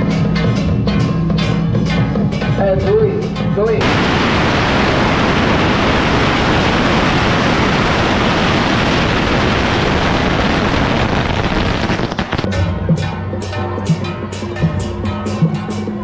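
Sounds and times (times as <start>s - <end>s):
music with steady drum beat: 0.0s - 3.8s, 12.4s - 16.0s
firecrackers crackling: 3.8s - 12.5s.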